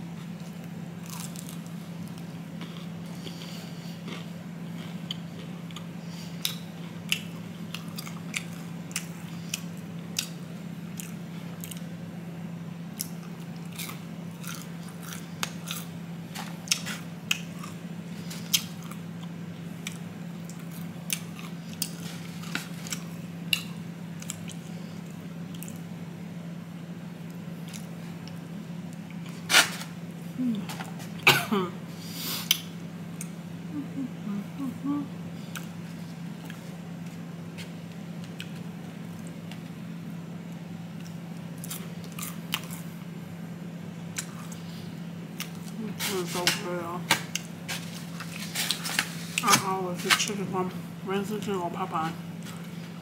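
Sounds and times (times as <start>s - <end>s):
steady low hum: 0.0s - 53.0s
chewing crispy fried chicken: 0.1s - 12.0s, 12.9s - 26.0s, 40.5s - 43.0s.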